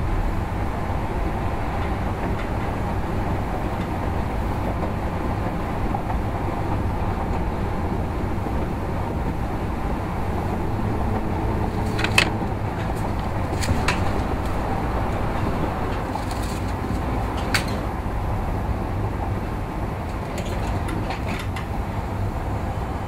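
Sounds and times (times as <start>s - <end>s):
road and engine noise in van: 0.0s - 23.0s
sharp clicks or rattles: 11.7s - 14.6s.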